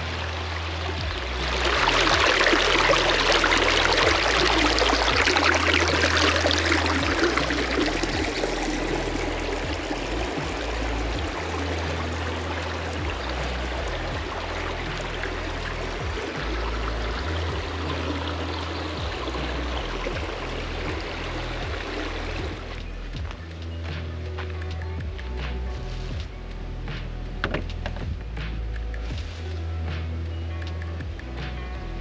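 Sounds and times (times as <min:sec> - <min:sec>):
creek splashing over rocks: 0:00.0 - 0:23.2.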